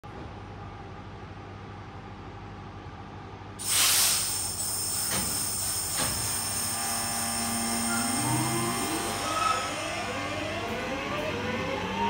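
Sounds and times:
air brakes hissing: 3.6s - 6.8s, 7.6s - 9.8s
electric train humming: 6.2s - 12.0s.

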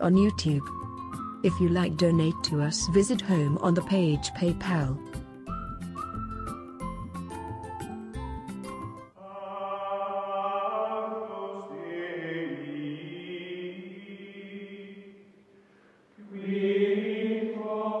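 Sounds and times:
choir-like chant of held chords: 9.2s - 15.3s, 16.2s - 18.0s.

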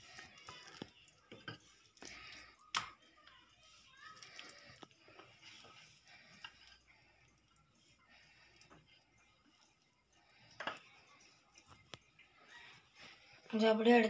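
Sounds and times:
dough handling sounds: 0.0s - 13.7s
rolling pin on dough: 1.3s - 7.0s.

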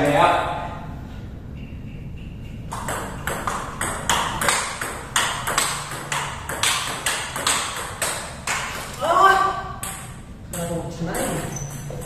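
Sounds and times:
ping pong ball hits: 2.7s - 9.0s, 9.8s - 12.0s.

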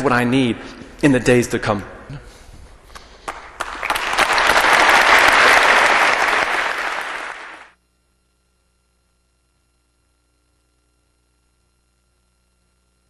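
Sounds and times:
audience applauding: 2.9s - 7.7s.

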